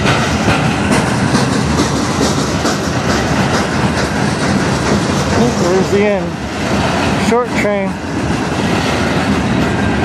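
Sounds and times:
train wheels rumbling on rail: 0:00.0 - 0:10.0
wheels clacking over rail joints: 0:00.0 - 0:10.0.

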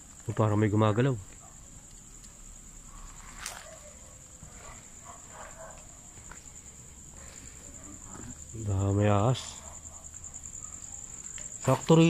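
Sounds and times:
crickets trilling: 0:00.0 - 0:12.0
faint footsteps: 0:03.1 - 0:08.4.

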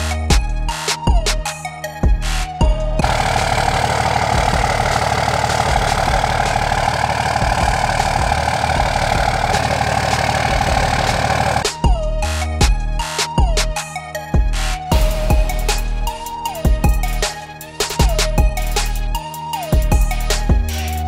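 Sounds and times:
diesel engine idling: 0:03.0 - 0:11.7.

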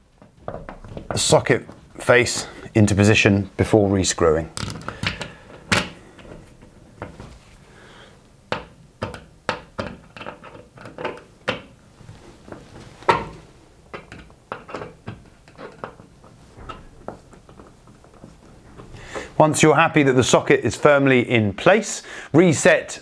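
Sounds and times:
screwdriver clicking and scraping: 0:14.0 - 0:16.1.

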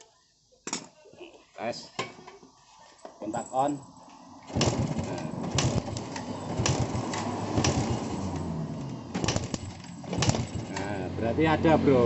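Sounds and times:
engine cranking clatter: 0:04.4 - 0:11.2
sharp clicks: 0:04.5 - 0:10.9.

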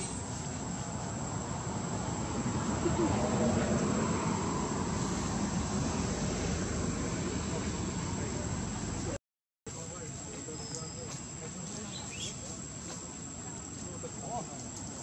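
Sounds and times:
faint indistinct voices: 0:07.2 - 0:15.0.

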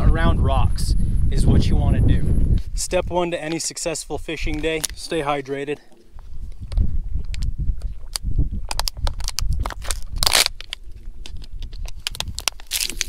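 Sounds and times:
wind buffeting microphone: 0:00.0 - 0:05.1, 0:06.1 - 0:13.0
plastic bottle crinkling: 0:04.4 - 0:05.1, 0:06.5 - 0:13.0.

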